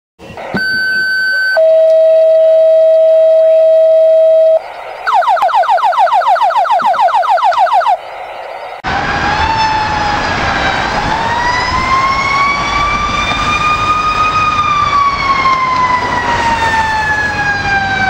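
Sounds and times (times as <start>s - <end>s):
radio paging tones: 0.2s - 8.8s.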